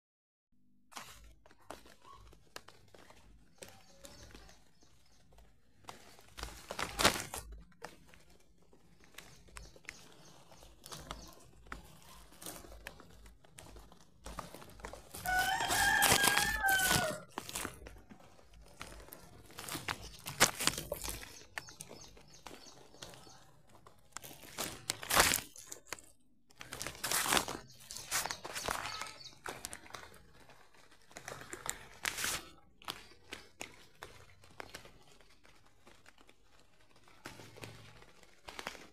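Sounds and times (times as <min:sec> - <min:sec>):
rustles: 0:00.9 - 0:38.9
rooster crowing: 0:15.2 - 0:17.3.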